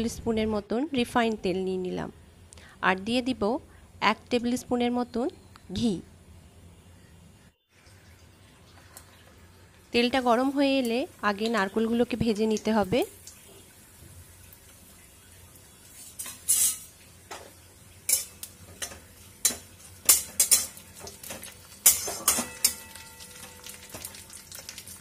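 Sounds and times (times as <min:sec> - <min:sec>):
low sizzle of frying: 0:06.9 - 0:25.0
spatula scraping a steel pan: 0:16.0 - 0:16.9.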